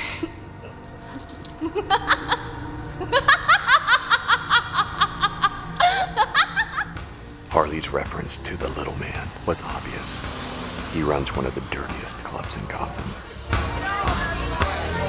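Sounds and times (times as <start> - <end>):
low film score music: 0.0 - 14.9
woman laughing: 1.5 - 7.0.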